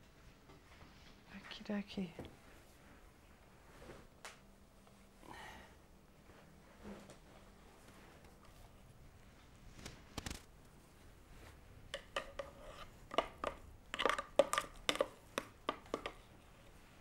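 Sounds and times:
spatula scraping plastic bowl: 12.0 - 16.2.

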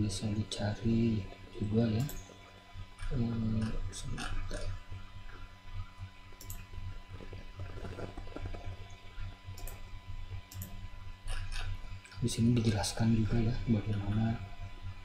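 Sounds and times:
low electrical hum: 0.0 - 15.0
computer mouse clicks: 2.0 - 2.3, 6.4 - 9.8, 10.5 - 11.6.

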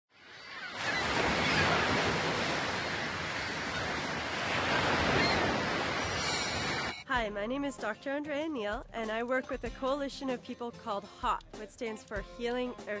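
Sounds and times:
ocean surf washing: 0.2 - 7.0.

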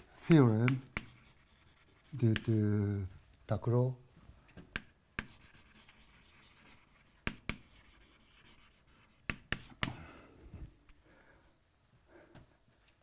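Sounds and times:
chalk scraping: 0.4 - 2.8, 5.2 - 9.9
chalk tapping on blackboard: 0.5 - 2.7, 4.7 - 10.0.

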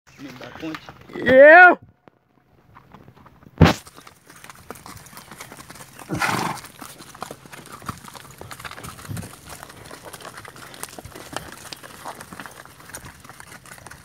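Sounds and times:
hooves clopping on dirt: 0.1 - 14.0
horse blowing: 6.0 - 6.8.

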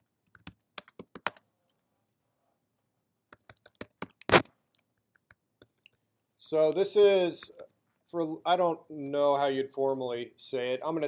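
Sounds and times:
keyboard typing: 0.2 - 1.8, 3.3 - 6.0.

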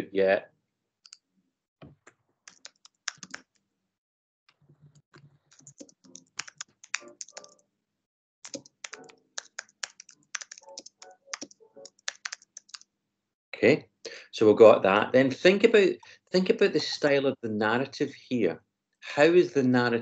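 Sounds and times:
typing on computer keyboard: 2.5 - 3.5, 5.5 - 7.6, 8.4 - 12.8.

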